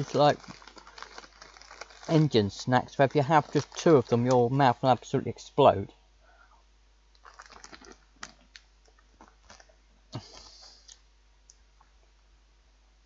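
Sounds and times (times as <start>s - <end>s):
plastic packet crinkling: 0.0s - 4.9s, 7.1s - 9.8s
chewing crunchy snack: 7.2s - 11.0s.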